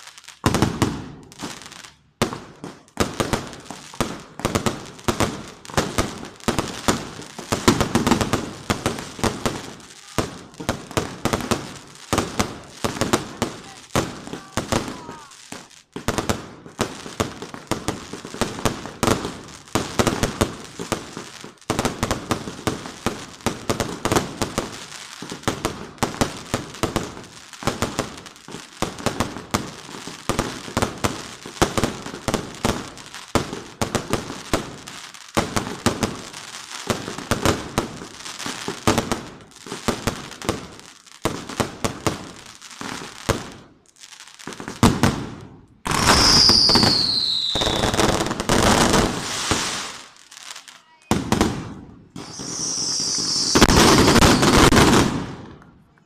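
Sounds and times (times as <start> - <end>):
fireworks bangs and pops: 0.0 - 56.0
fireworks crackling: 0.0 - 56.0.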